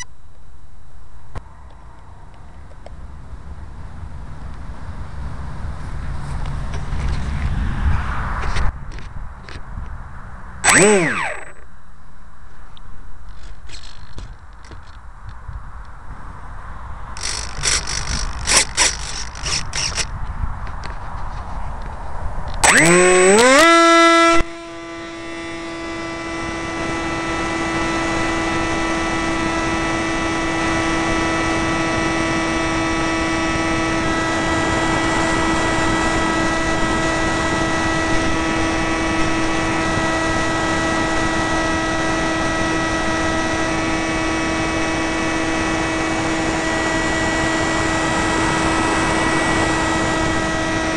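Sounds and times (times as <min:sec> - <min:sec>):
wind noise: 0:03.8 - 0:11.6, 0:13.3 - 0:23.7, 0:26.4 - 0:50.9
electric motor whine: 0:10.6 - 0:11.6, 0:17.2 - 0:20.1, 0:22.6 - 0:50.9.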